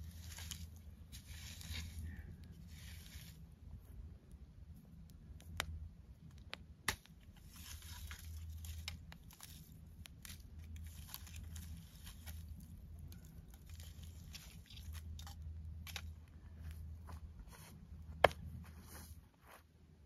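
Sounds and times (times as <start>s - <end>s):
dry nest material crackling: 0.0s - 3.4s, 5.3s - 16.7s.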